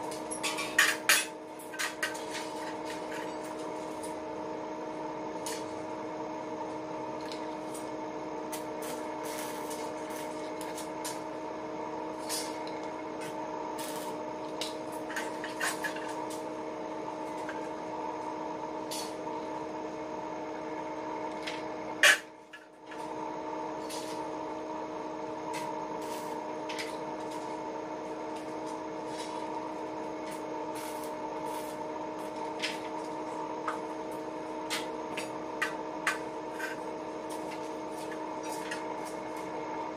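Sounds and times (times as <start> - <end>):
workshop hum: 0.0 - 39.9.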